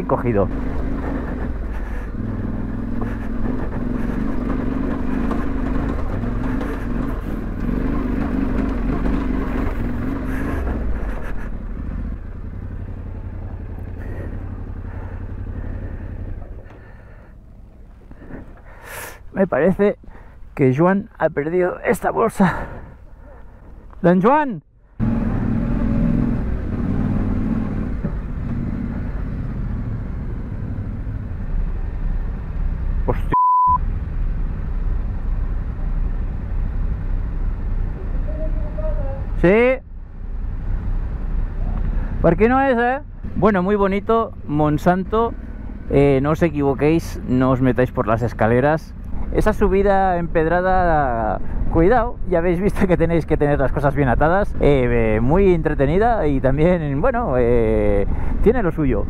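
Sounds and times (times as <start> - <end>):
motorcycle engine pulling uphill: 0.0 - 20.4, 40.3 - 59.0
motorcycle clattering over stones: 3.4 - 10.9.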